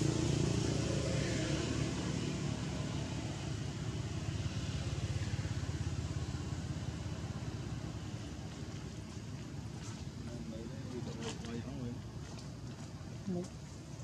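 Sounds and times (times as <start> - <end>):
engine running with pulsing throb: 0.0 - 10.2.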